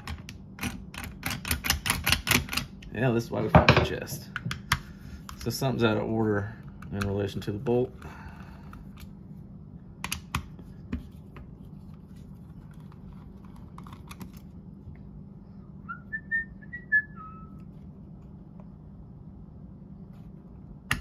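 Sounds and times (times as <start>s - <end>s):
steady low hum: 0.0s - 21.0s
person whistling: 15.8s - 17.6s.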